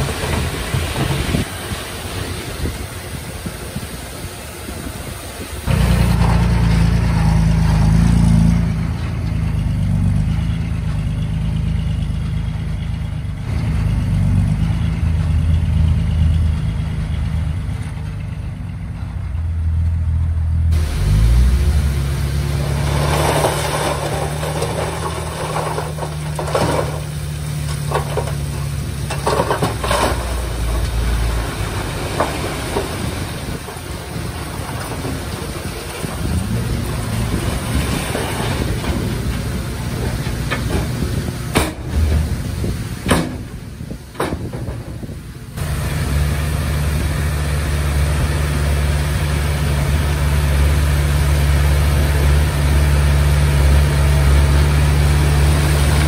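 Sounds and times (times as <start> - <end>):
bulldozer diesel engine running: 0.0 - 56.0
blade knocking and scraping stones: 22.6 - 31.0.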